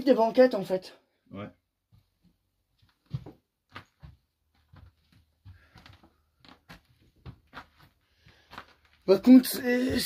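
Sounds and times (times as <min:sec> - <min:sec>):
footsteps crunching on debris: 0:02.8 - 0:10.0.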